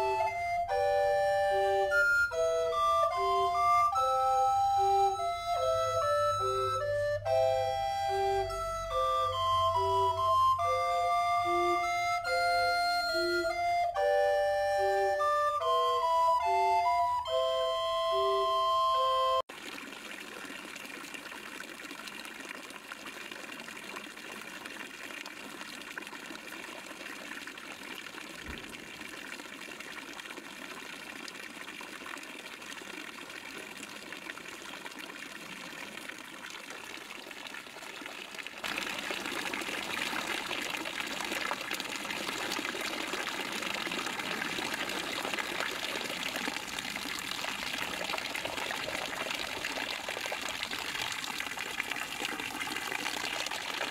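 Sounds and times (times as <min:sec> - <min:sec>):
water pouring and splashing: 0:19.4 - 0:53.9.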